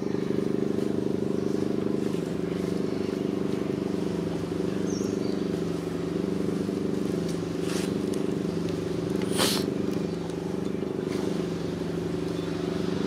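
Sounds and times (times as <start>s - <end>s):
engine hum: 0.0s - 13.0s
short hiss: 9.2s - 9.7s.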